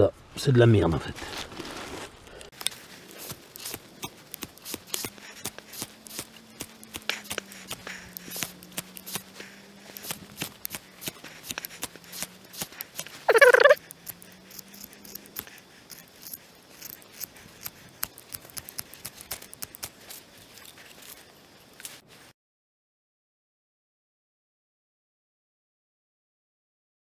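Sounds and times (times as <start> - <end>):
knife scraping firesteel rod: 1.2 - 22.0.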